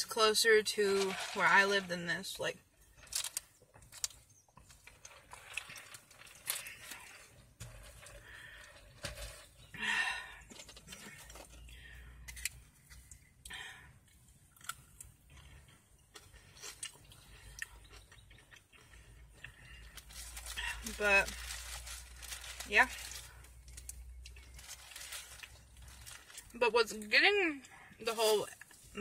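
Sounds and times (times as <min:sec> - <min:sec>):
chewing with crunches: 0:02.8 - 0:26.6.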